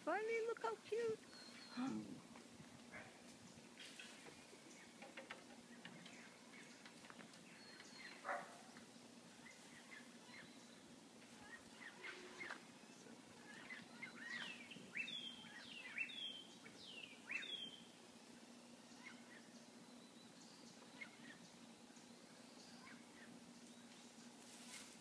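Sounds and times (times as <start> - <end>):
faint steady hum: 0.0 - 25.0
birds chirping and whistling: 1.2 - 1.9, 5.6 - 18.0, 18.6 - 24.3.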